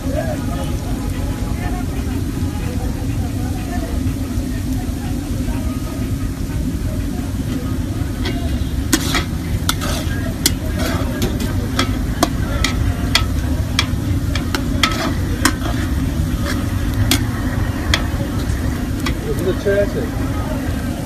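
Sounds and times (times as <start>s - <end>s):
low rumble: 0.0s - 21.0s
onions sizzling in oil: 0.0s - 21.0s
metal ladle scraping a pot: 8.1s - 19.4s.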